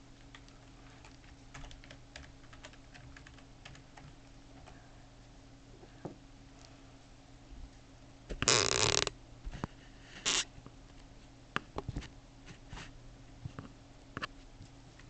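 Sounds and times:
computer keyboard and mouse clicks: 0.2s - 4.7s.

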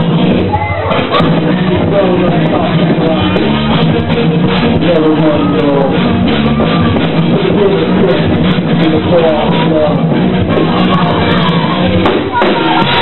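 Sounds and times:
drum kit with cymbals: 0.0s - 13.0s
steady low bass: 0.0s - 13.0s.

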